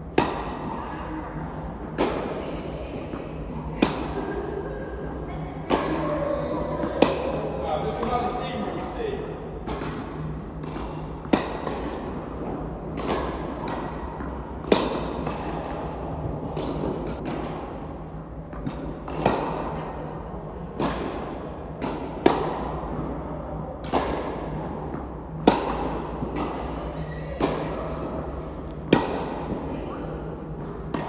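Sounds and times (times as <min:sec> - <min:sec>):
racket hitting tennis ball: 0:00.1 - 0:00.8, 0:01.4 - 0:02.4, 0:03.8 - 0:04.4, 0:06.7 - 0:08.1, 0:09.6 - 0:19.8, 0:20.5 - 0:23.2, 0:23.8 - 0:31.0
tennis ball bouncing: 0:00.1 - 0:00.8, 0:03.0 - 0:04.6, 0:05.6 - 0:08.2, 0:09.6 - 0:19.8, 0:20.5 - 0:31.0.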